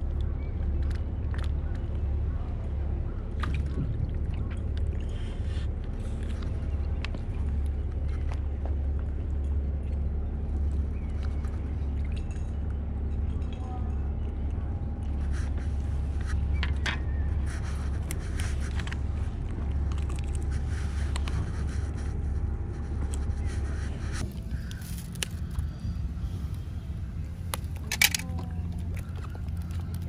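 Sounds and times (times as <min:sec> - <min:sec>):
steady low rumble: 0:00.0 - 0:30.0
fish grip clicks and scrapes: 0:27.5 - 0:30.0.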